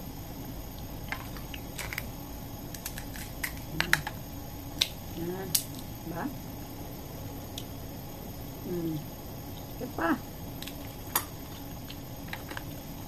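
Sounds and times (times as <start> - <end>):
crab shell snapping: 2.7 - 4.2, 4.8 - 5.9.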